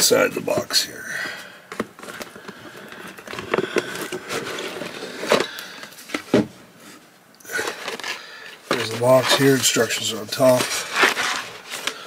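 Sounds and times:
cardboard box rustling and scraping: 1.8 - 7.0, 7.6 - 11.9.

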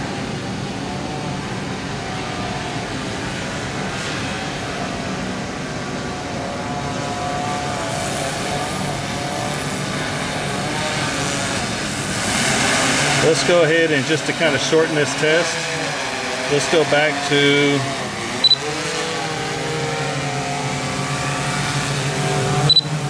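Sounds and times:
drone propellers humming: 0.0 - 23.0
hiss: 7.4 - 13.6.

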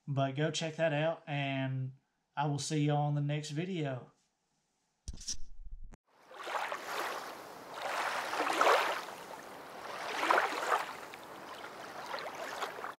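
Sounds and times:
rushing water: 6.2 - 13.0.

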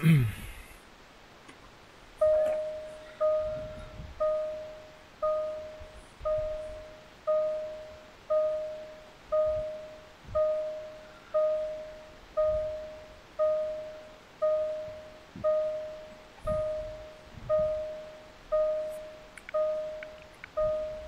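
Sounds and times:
car warning chime bong: 2.2 - 21.0.

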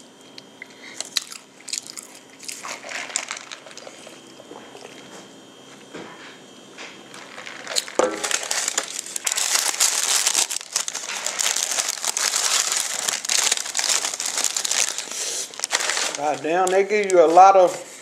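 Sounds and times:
paper wrapping crinkling: 7.1 - 18.0.

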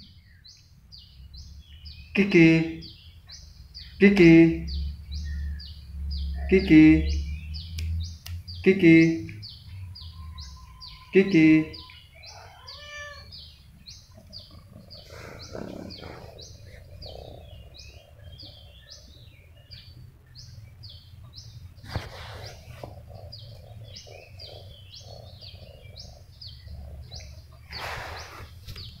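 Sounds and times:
bird chirping: 0.0 - 29.0
brief rustles: 21.8 - 22.8.

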